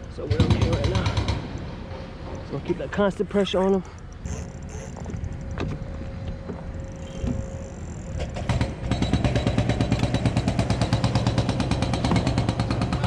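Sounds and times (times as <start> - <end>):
fishing reel clicking: 3.2 - 10.8.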